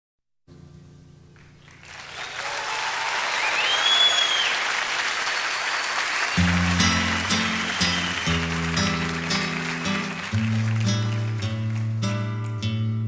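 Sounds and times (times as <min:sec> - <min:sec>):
crowd applause: 0:01.6 - 0:12.0
audience whistle: 0:02.0 - 0:10.4
instrumental music: 0:06.4 - 0:13.0.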